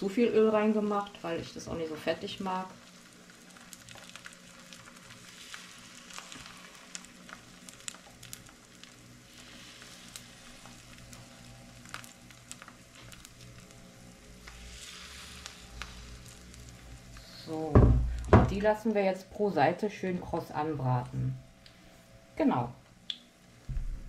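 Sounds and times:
food sizzling in oil: 0.0 - 18.9
oil crackles and pops: 0.0 - 18.9, 22.8 - 24.0.

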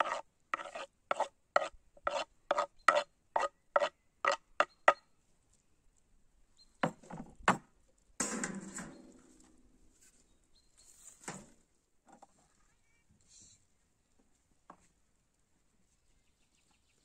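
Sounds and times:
regular chopping strokes: 0.0 - 4.4.

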